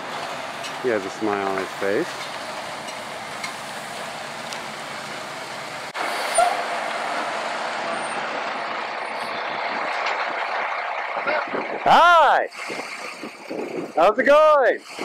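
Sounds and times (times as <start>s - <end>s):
truck driving slowly past: 0.0s - 11.9s.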